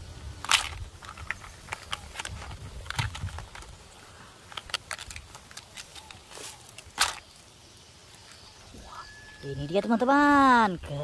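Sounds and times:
leaves rustling: 0:00.0 - 0:11.0
plastic track pieces clicking: 0:00.4 - 0:03.8, 0:04.5 - 0:06.2.

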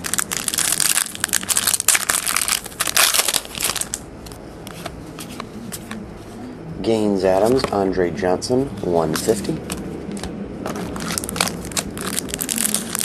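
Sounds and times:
wrapper crinkling and crumpling: 0:00.0 - 0:04.0, 0:10.7 - 0:13.0.

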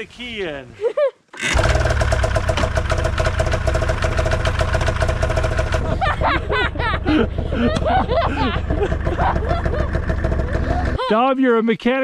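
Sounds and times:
snowmobile engine running: 0:01.4 - 0:11.0.

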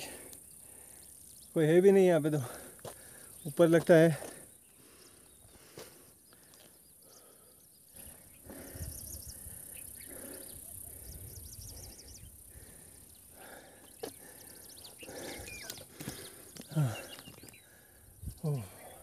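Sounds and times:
birds chirping: 0:00.0 - 0:19.0
wind rumbling on microphone: 0:08.5 - 0:12.9, 0:18.0 - 0:18.6.

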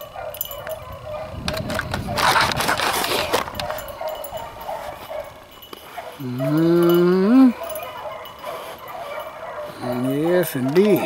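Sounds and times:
rustling through dry leaves: 0:01.2 - 0:06.8.

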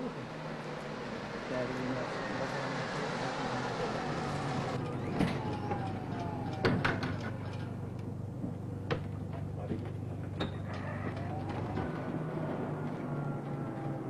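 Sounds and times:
faint falling whine: 0:03.8 - 0:14.0.

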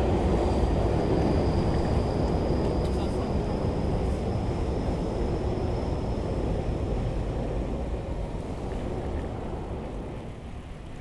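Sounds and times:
bicycle tyres rolling: 0:00.0 - 0:03.0, 0:07.9 - 0:11.0
wind on microphone: 0:00.0 - 0:11.0.

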